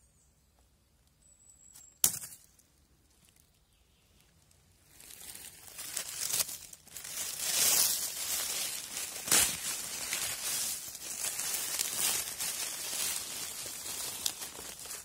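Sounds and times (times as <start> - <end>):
dry leaves rustling: 4.8 - 15.0.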